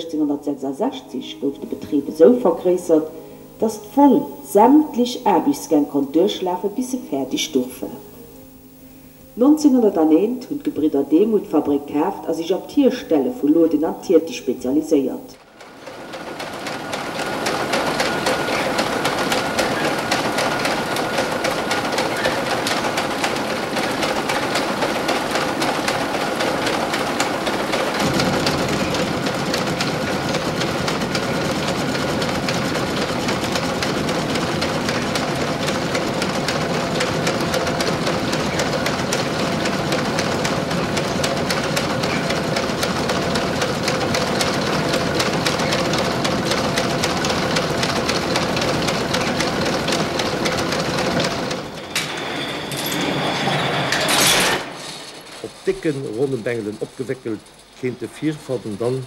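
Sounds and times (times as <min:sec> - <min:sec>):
steady machine hum: 0:00.0 - 0:59.0
machines clattering rapidly: 0:10.8 - 0:59.0.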